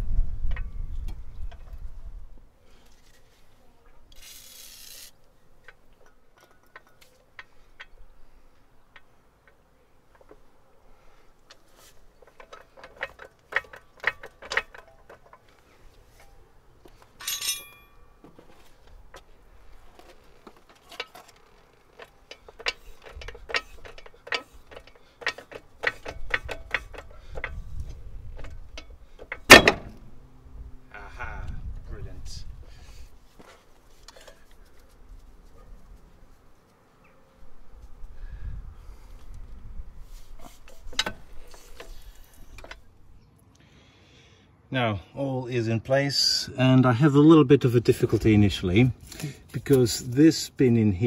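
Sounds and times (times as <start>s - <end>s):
trolley jack metallic clicks: 12.2s - 15.4s, 20.6s - 30.0s
loud metal clunk: 29.2s - 30.1s.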